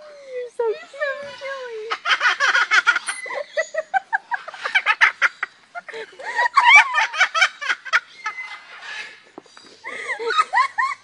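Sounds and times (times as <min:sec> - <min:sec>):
cockatoo imitating laughter: 0:01.9 - 0:08.5.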